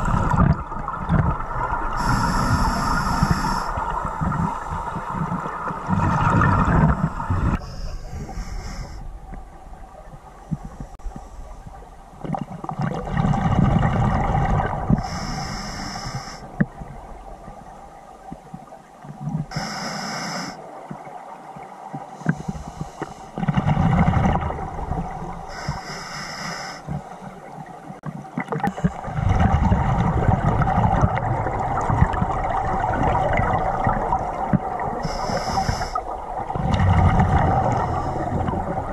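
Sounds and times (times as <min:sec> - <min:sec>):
exhaled bubbles rushing: 0:00.0 - 0:08.3, 0:12.2 - 0:15.1, 0:23.4 - 0:25.5, 0:28.4 - 0:35.1, 0:36.0 - 0:38.9
hissing regulator inhalations: 0:01.9 - 0:05.1, 0:07.5 - 0:09.1, 0:15.0 - 0:16.5, 0:19.5 - 0:20.6, 0:25.5 - 0:27.1, 0:35.0 - 0:36.2.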